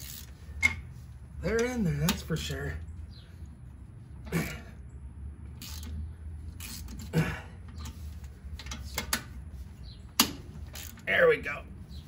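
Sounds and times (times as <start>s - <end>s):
ratchet metallic clicks: 0.0s - 0.8s, 5.6s - 6.0s, 10.2s - 11.1s.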